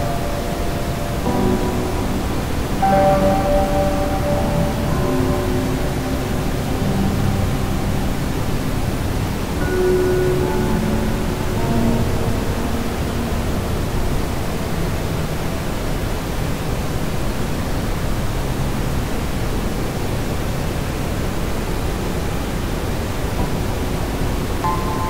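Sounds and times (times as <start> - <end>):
steady rushing noise: 0.0 - 25.0.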